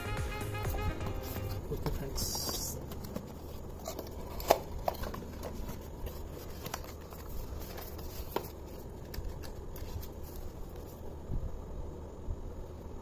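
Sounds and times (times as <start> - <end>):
steady low hum: 0.0 - 13.0
cardboard box rustling and tapping: 1.0 - 9.6.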